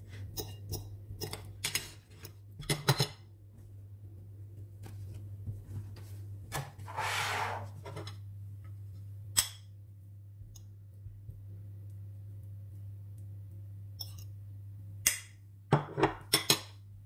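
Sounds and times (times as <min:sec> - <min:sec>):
steady low hum: 0:03.3 - 0:16.2.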